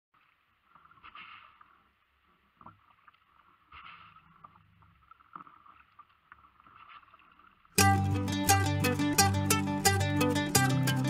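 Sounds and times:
paddle swishing through water: 0.2s - 7.8s.

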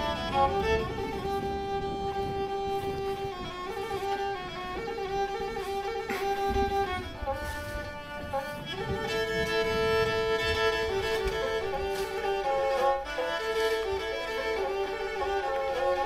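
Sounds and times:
bowed fiddle melody: 0.0s - 16.0s.

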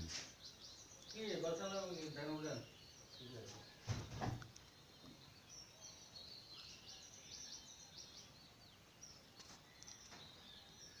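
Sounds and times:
faint high bird chirps: 0.0s - 11.0s.

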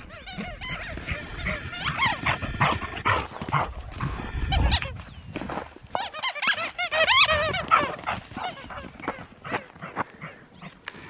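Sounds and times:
dogs yelping and whining: 0.0s - 3.7s, 6.0s - 9.8s.

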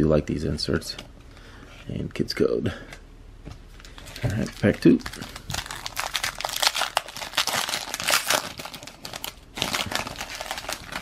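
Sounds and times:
foil wrapper tearing and crinkling: 3.8s - 11.0s.

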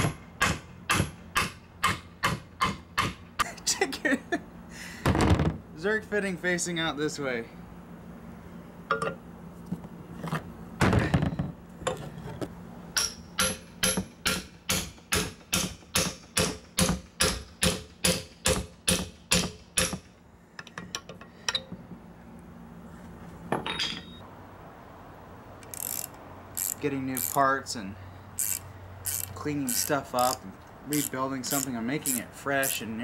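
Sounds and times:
hammer striking metal: 13.0s - 20.1s.

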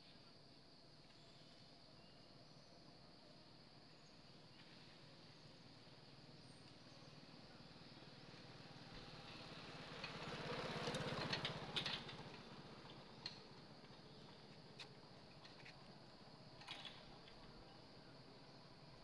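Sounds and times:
engine passing: 7.7s - 15.2s.

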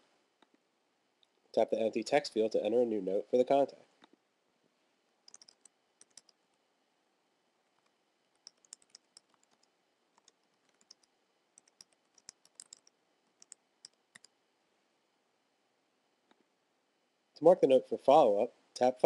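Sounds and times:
keyboard typing clicks: 5.3s - 6.4s, 7.8s - 14.4s.

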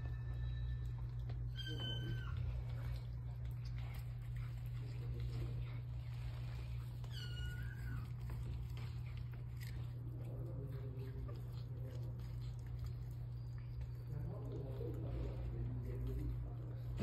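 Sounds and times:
cat mewing: 7.0s - 8.4s.

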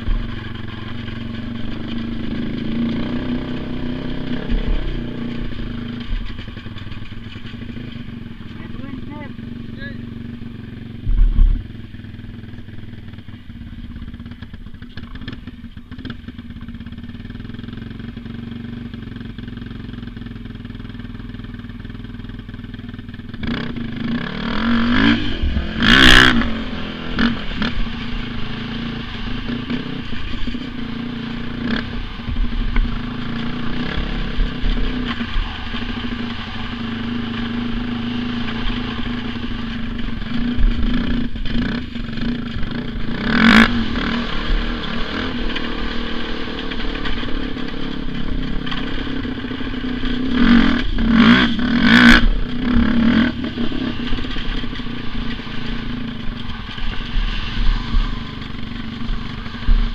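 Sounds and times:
engine running and revving: 0.0s - 59.9s
sharp clatter: 0.0s - 59.9s
low thump: 11.0s - 11.7s.

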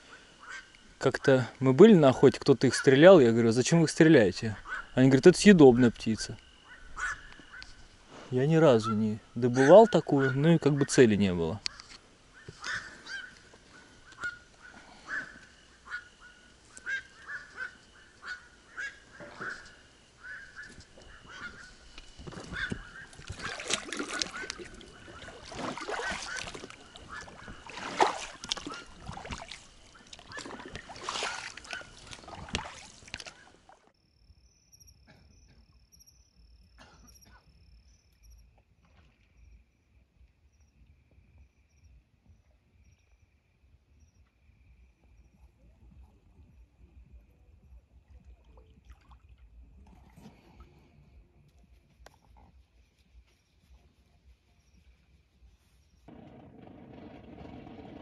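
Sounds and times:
geese honking: 0.0s - 0.8s, 4.6s - 5.0s, 6.6s - 7.9s, 8.7s - 11.1s, 11.7s - 32.3s.

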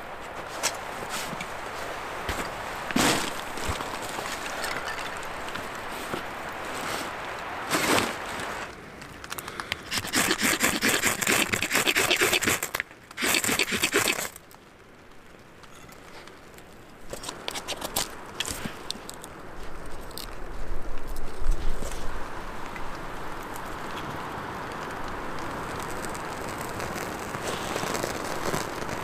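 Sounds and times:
kindling crackling in fire: 0.0s - 29.0s
knife scraping dry wood: 9.8s - 14.4s.

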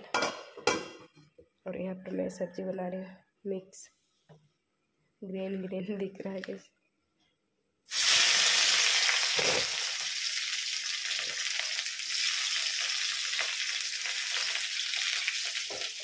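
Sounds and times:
onion sizzling in hot oil: 7.9s - 16.0s.

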